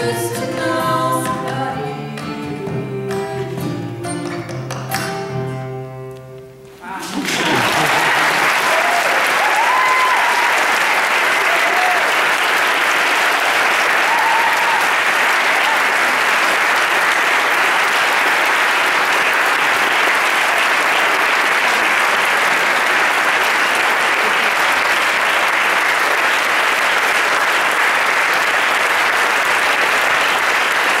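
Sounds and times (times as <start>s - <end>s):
audience applauding: 6.8s - 31.0s.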